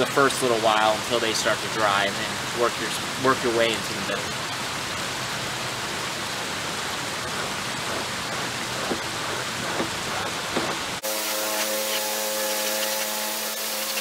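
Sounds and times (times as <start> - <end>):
steady hum: 0.0 - 14.0
steady rushing hiss: 0.0 - 14.0
hide being worked by hand: 7.3 - 11.0.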